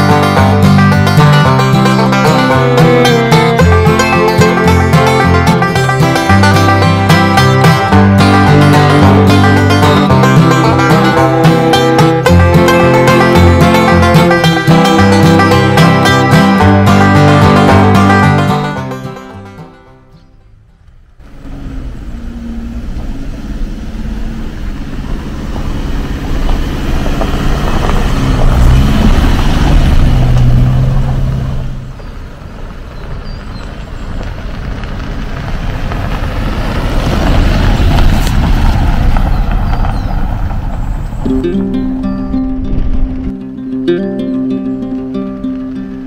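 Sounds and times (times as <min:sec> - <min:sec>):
car driving on gravel: 0:00.0 - 0:43.5.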